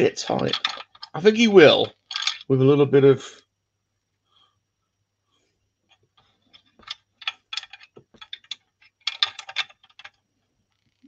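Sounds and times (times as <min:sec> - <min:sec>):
plastic toy clicks and knocks: 0:00.3 - 0:02.5, 0:06.6 - 0:10.2.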